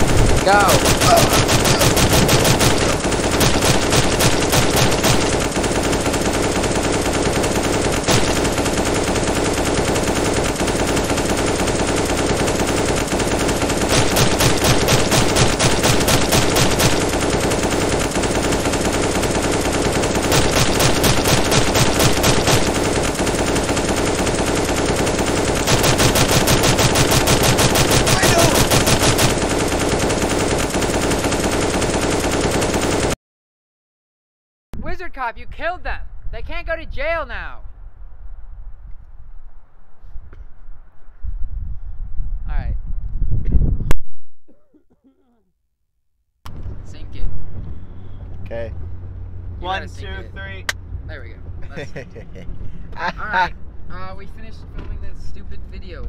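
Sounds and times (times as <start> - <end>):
machine-gun fire: 0.0 - 33.2.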